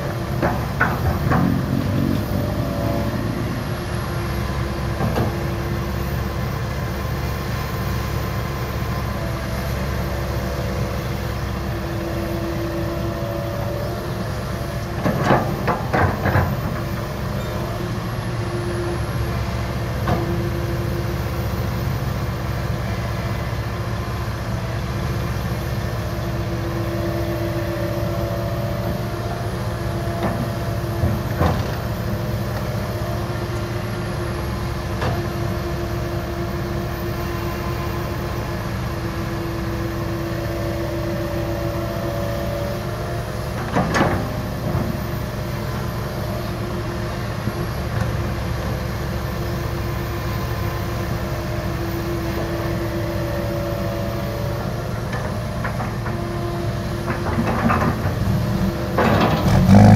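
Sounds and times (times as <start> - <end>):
excavator diesel engine running: 0.0 - 59.9
hum: 1.2 - 4.5.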